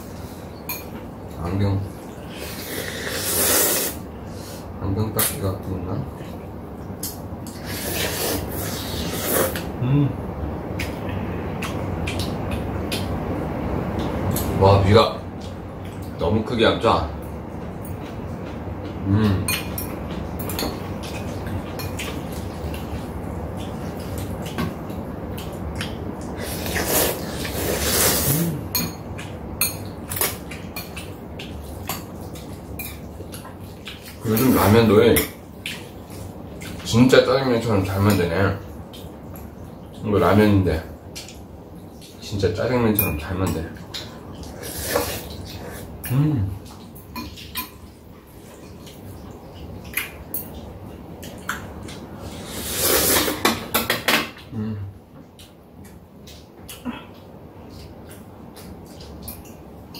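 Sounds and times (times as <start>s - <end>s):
heavy rain hissing: 2.2s - 4.7s, 52.2s - 53.5s
noodles being slurped: 2.4s - 4.0s, 7.6s - 9.6s, 26.4s - 28.6s, 52.2s - 53.5s.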